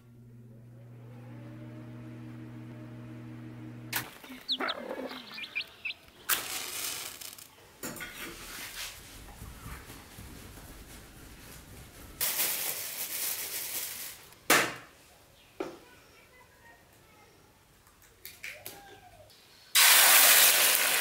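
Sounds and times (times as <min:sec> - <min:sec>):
chickens chirping: 0:04.0 - 0:06.5
chick pecking at grain: 0:04.0 - 0:06.8
rustling noise: 0:04.0 - 0:14.4.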